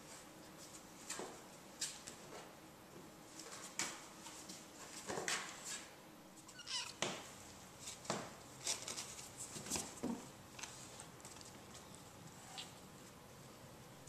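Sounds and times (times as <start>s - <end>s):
kittens scrabbling and scratching: 3.4s - 12.8s.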